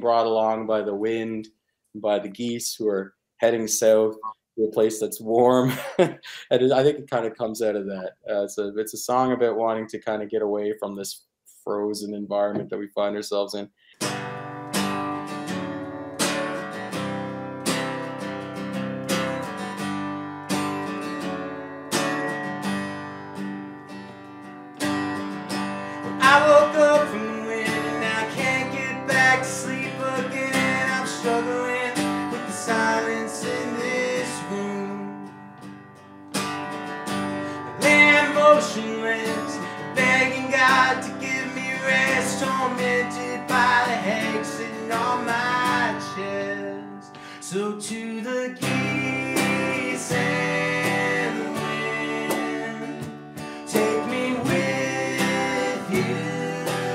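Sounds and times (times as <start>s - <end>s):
acoustic guitar strumming: 14.0s - 56.9s
man singing lead vocal: 26.0s - 35.2s, 37.6s - 56.9s.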